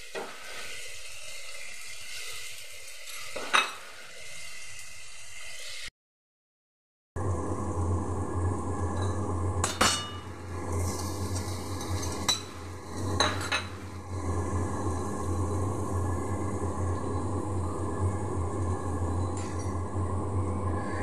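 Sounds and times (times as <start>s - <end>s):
spices frying: 0.0s - 5.9s, 8.0s - 20.5s
steady low hum: 7.2s - 21.0s.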